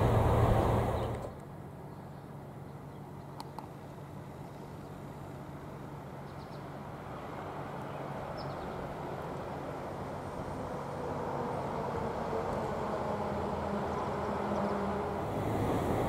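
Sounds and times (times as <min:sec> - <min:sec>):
diesel locomotive rumble: 0:00.0 - 0:01.4, 0:08.9 - 0:16.0.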